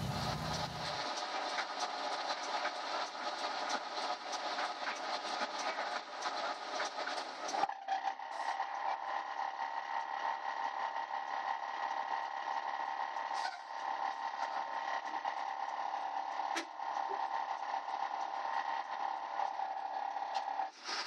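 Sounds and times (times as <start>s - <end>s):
bus engine droning: 0.0s - 1.2s.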